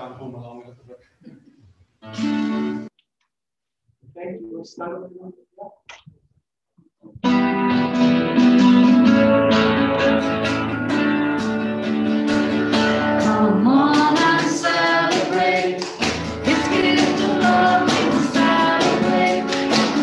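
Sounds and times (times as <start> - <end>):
drums: 7.1 - 20.0
strummed guitar: 7.2 - 20.0
woman singing: 13.1 - 20.0.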